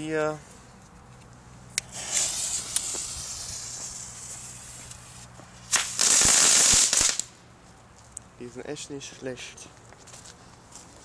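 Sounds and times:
firework crack: 1.7s - 7.4s
firework fuse hissing: 1.7s - 7.4s
firework hissing and crackling: 1.8s - 7.4s.

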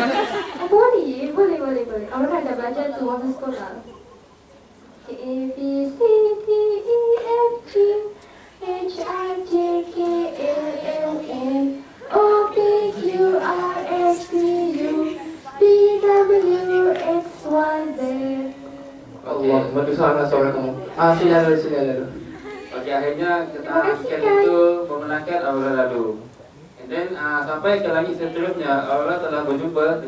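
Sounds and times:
child singing: 5.1s - 19.0s.

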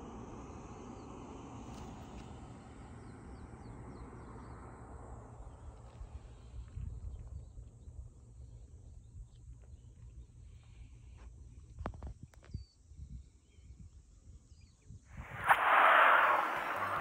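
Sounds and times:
wind rumble on microphone: 6.5s - 8.0s, 11.6s - 17.0s
faint bird chirps: 12.5s - 17.0s
loud rushing noise: 15.2s - 17.0s.

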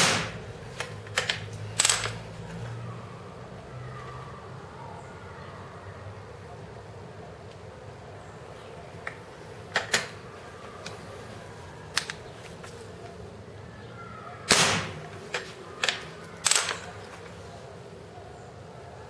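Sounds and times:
air gun shot: 0.0s - 0.4s, 14.5s - 15.0s.

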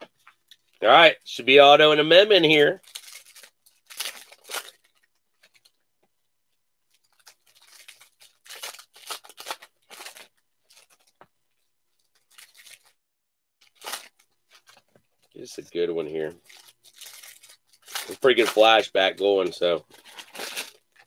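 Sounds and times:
foil pack tearing and crinkling: 2.8s - 5.7s, 7.0s - 11.2s, 12.2s - 13.0s, 13.6s - 14.9s, 16.3s - 21.0s.

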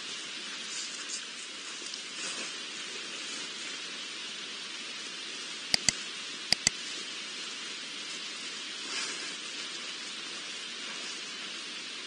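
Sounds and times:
steady outdoor hiss: 0.0s - 12.0s
sharp clicks: 5.7s - 6.8s.

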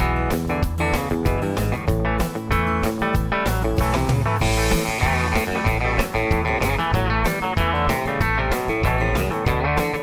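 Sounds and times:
guitar instrumental music: 0.0s - 10.0s
quick steady beat: 3.1s - 9.4s.

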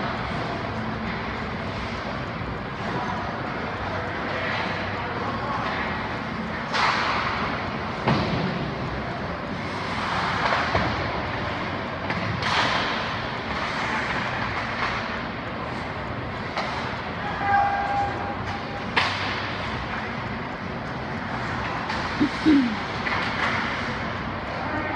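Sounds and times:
hockey sticks striking pucks: 6.7s - 8.7s, 9.6s - 11.5s, 12.1s - 15.2s, 16.4s - 20.0s.

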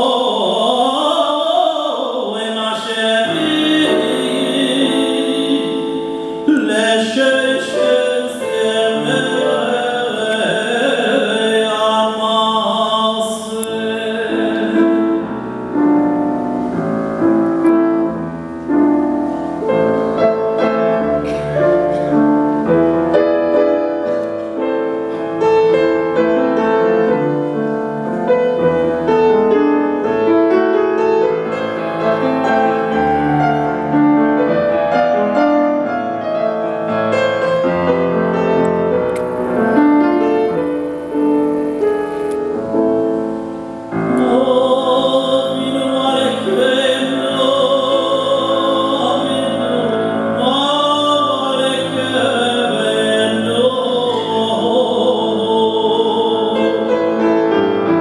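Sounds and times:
man singing operatically: 0.0s - 15.3s, 44.1s - 57.3s
grand piano: 0.0s - 58.0s.

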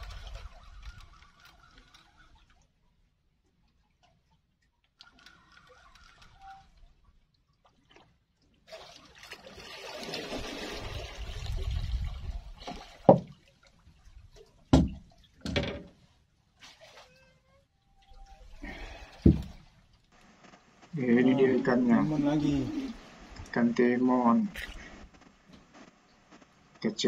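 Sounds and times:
water splashing and trickling: 0.0s - 20.2s, 21.0s - 26.2s
sharp knocks: 14.7s - 15.9s, 19.2s - 19.6s.

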